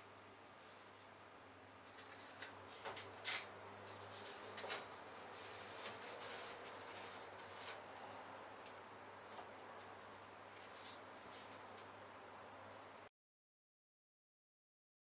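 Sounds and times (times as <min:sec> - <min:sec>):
low steady hum: 0:00.0 - 0:13.1
paper rustling and tapping: 0:01.9 - 0:08.0.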